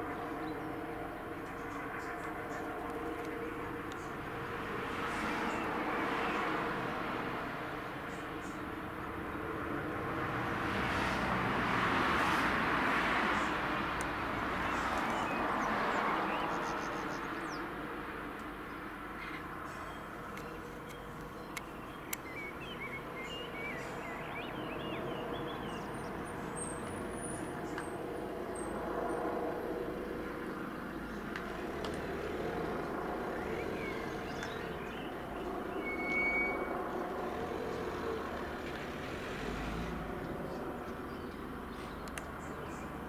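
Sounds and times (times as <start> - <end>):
distant helicopter drone: 0.0 - 43.0
birds chirping: 14.5 - 43.0.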